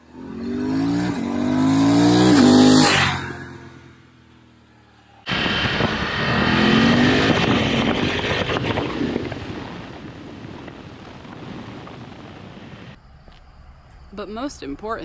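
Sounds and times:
motorcycle engine revving: 0.0s - 10.8s.

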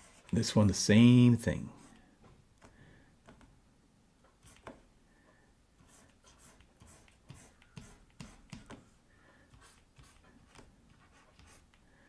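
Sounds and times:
stylus scratching on drawing tablet: 0.0s - 0.7s, 4.3s - 4.8s, 5.8s - 8.9s, 9.5s - 11.8s.

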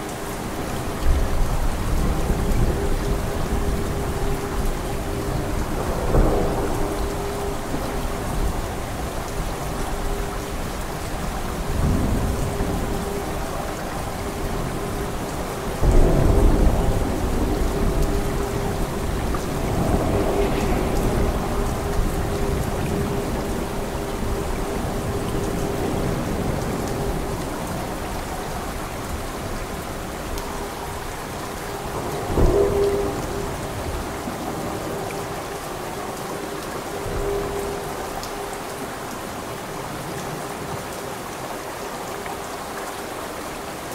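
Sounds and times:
heavy rain: 0.0s - 43.9s
thunder rumbling: 0.4s - 40.1s
loud thunderclap: 15.8s - 22.9s.

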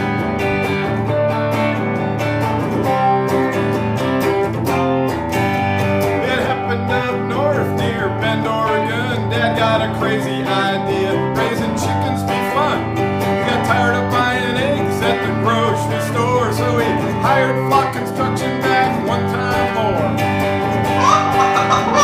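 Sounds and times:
electric guitar strummed: 0.0s - 22.0s
man singing: 6.0s - 20.8s.

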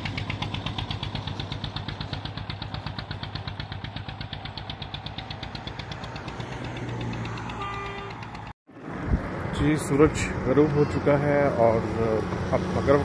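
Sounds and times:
motorcycle rickshaw engine chugging: 0.0s - 8.5s.

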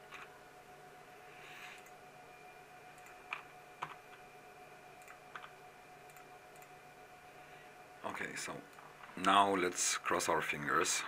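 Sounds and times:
faint steady hum: 0.0s - 11.0s
computer mouse clicks: 3.0s - 4.2s, 5.0s - 6.8s.

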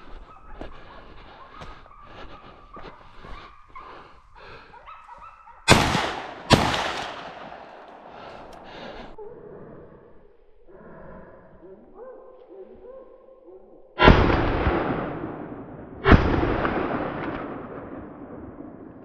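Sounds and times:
dogs baying and yelping: 0.0s - 5.7s, 11.6s - 13.9s
shotgun shots with echo: 5.7s - 8.6s, 14.0s - 18.2s.

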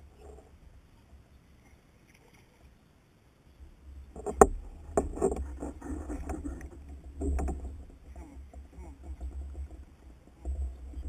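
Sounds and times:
low rumble: 3.6s - 11.0s
knocks and rattles on kayak: 3.9s - 11.0s.

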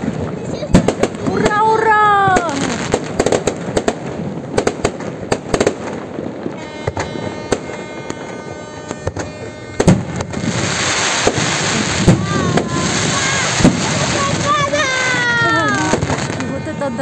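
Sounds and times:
fireworks bangs and crackles: 0.0s - 17.0s
steady high tone: 6.1s - 17.0s.

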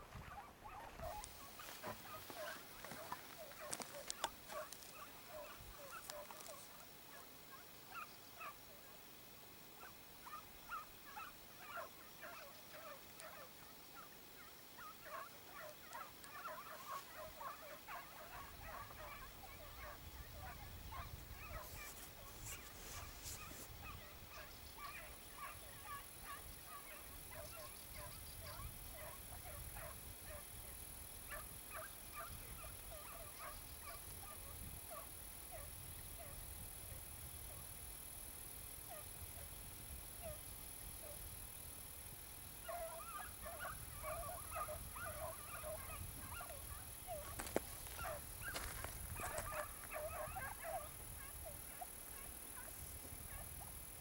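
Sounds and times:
hounds yelping: 0.1s - 8.8s, 9.8s - 37.6s, 38.9s - 39.5s, 40.2s - 40.4s, 42.5s - 54.0s.

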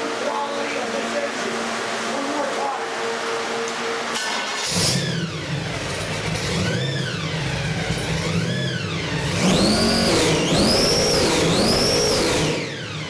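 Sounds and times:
supercharger whine: 0.0s - 13.0s
supercharged engine revving: 2.9s - 13.0s.

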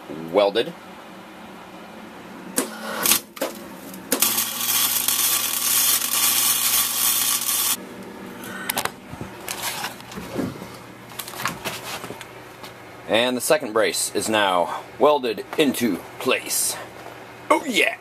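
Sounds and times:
welding arc hissing: 4.1s - 7.8s.

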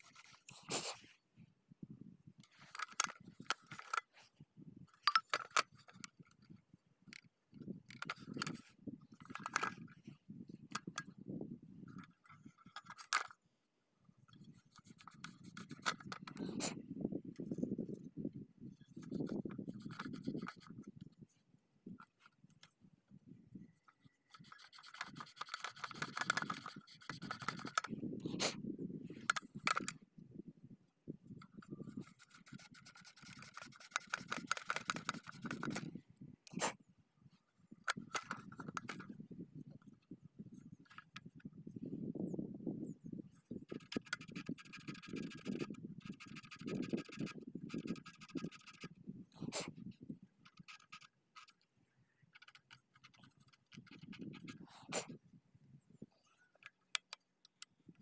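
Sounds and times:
metal clicks and clinks: 4.9s - 6.4s.

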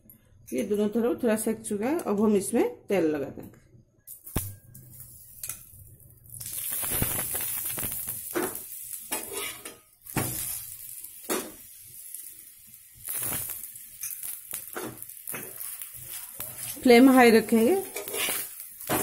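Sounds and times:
oil sizzling on a hot pan: 4.3s - 19.0s
spoon and spatula scraping pan: 8.4s - 9.8s, 14.0s - 19.0s.

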